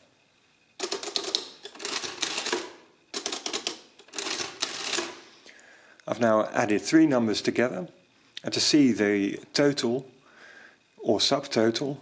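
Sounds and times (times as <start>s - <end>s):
adding machine clattering clicks: 0.8s - 5.2s.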